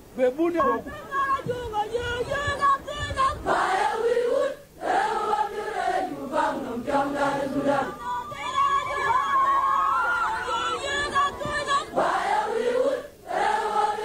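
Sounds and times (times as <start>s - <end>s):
crowd chanting in unison: 2.2s - 9.1s, 10.1s - 14.0s.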